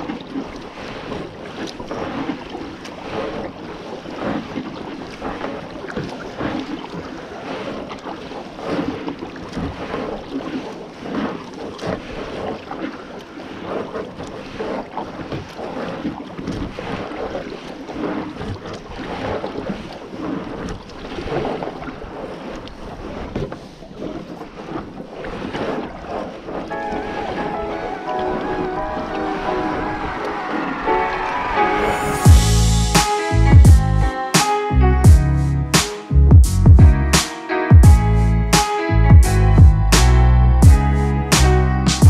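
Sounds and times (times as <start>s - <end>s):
water lapping against hull: 0.0s - 33.0s
paddle splashing in water: 0.0s - 35.2s.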